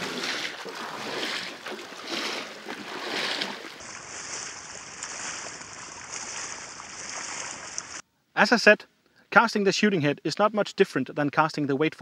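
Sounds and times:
wading steps splashing in water: 0:00.0 - 0:08.0.

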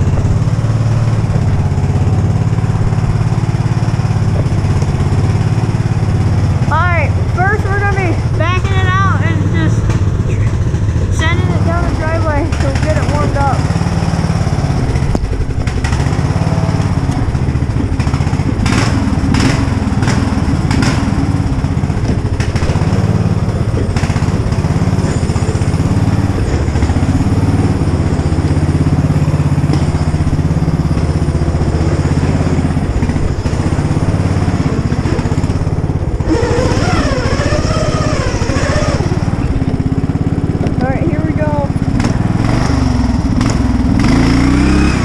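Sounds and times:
lawn mower engine running: 0:00.0 - 0:45.0.

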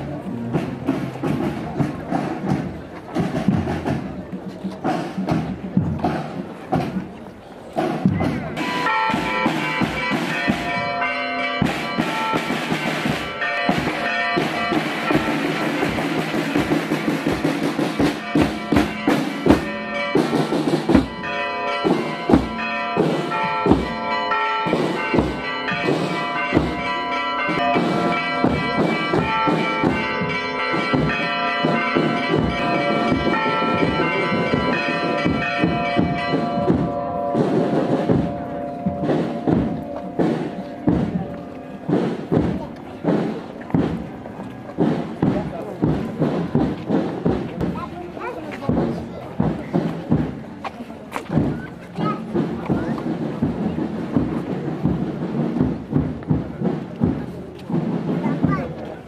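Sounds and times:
church bells ringing: 0:08.4 - 0:46.9.

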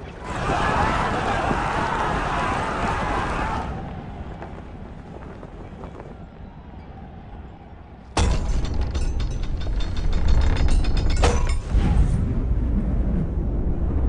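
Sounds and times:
wooden creaks: 0:08.2 - 0:11.8
heavy low rumble: 0:08.2 - 0:14.0.

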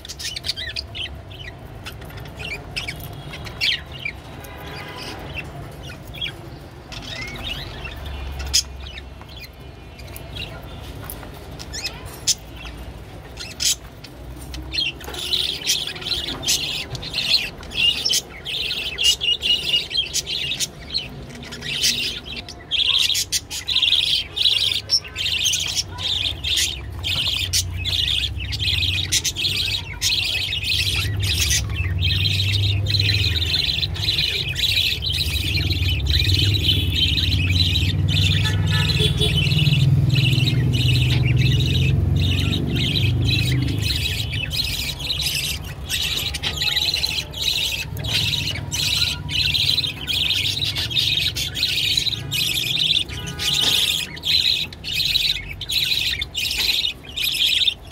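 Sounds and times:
budgerigars chattering: 0:11.7 - 0:57.9.

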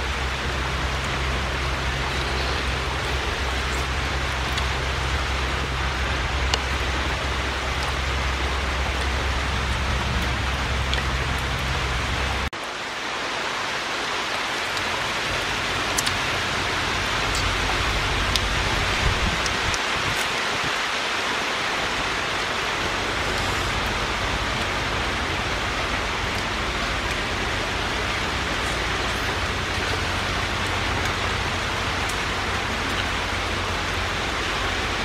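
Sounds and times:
low rumble: 0:00.0 - 0:12.5, 0:15.0 - 0:20.7
steady rushing hiss: 0:00.0 - 0:35.0.

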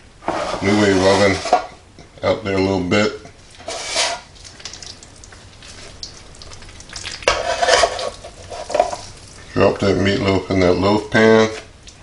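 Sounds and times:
hands squishing raw meat: 0:04.3 - 0:07.3.

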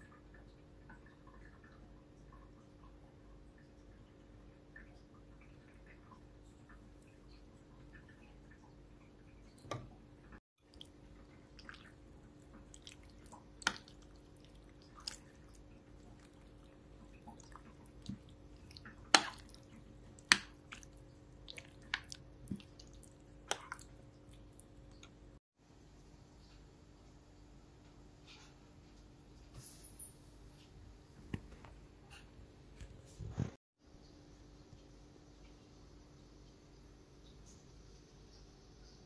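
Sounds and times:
wet squishing of stirred cream: 0:10.6 - 0:25.4.

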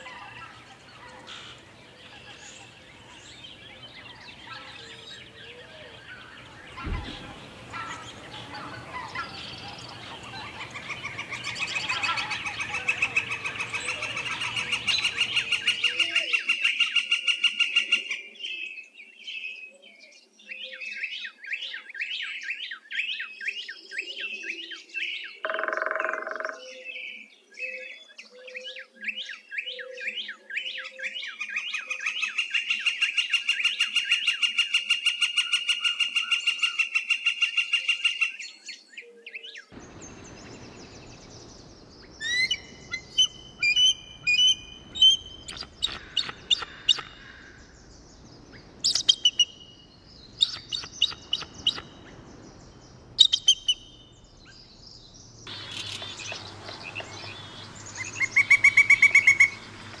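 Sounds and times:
eagle chittering calls: 0:00.0 - 0:16.2, 0:25.5 - 0:26.7, 0:42.2 - 0:47.6, 0:55.5 - 1:00.0
woodpecker calls: 0:00.0 - 0:16.4, 0:25.4 - 0:26.8, 0:42.2 - 0:47.6, 0:50.4 - 0:52.0, 0:55.5 - 1:00.0.

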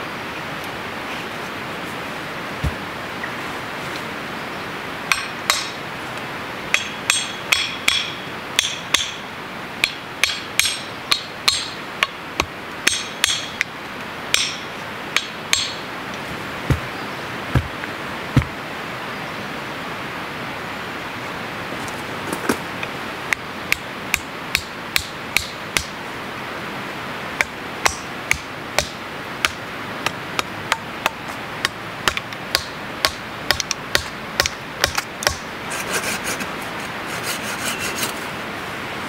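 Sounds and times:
steady background hiss: 0:00.0 - 0:39.0
dull low thuds: 0:02.6 - 0:03.0, 0:16.6 - 0:18.6
hatchet striking metal blade: 0:05.1 - 0:05.8, 0:06.7 - 0:09.2, 0:09.8 - 0:11.8, 0:12.9 - 0:13.6, 0:14.3 - 0:15.8.

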